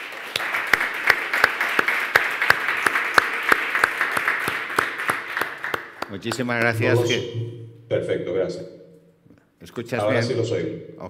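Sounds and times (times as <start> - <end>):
sharp close hand claps: 0.0 - 6.8
audience applause: 0.0 - 6.9.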